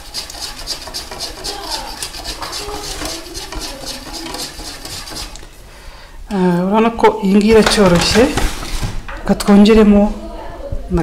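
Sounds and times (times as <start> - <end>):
whisk clicking against bowl: 0.0 - 5.4.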